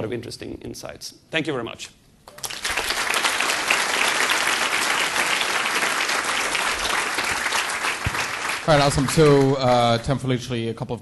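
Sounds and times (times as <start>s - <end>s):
audience applauding: 2.3s - 10.2s.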